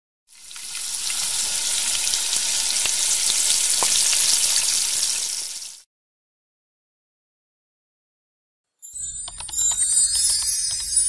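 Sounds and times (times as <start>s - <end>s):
deep-frying sizzle with pops: 0.3s - 5.9s.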